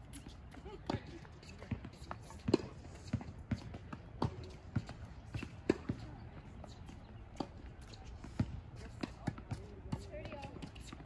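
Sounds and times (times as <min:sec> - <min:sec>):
racket hitting tennis ball: 0:00.1 - 0:06.1.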